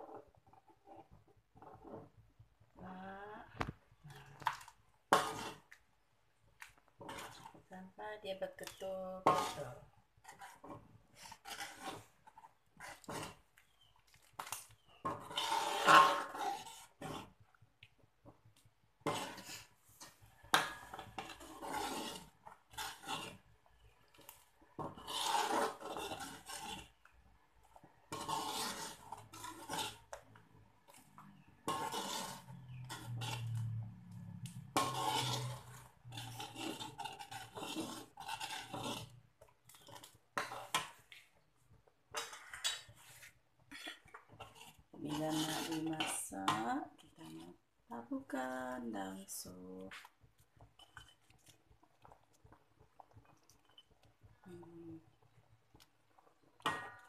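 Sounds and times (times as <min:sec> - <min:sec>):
metal ladle scraping wok: 0:04.0 - 0:05.8, 0:07.0 - 0:07.7, 0:08.4 - 0:17.4, 0:19.0 - 0:27.1, 0:27.9 - 0:41.0, 0:42.1 - 0:47.6, 0:56.6 - 0:57.0.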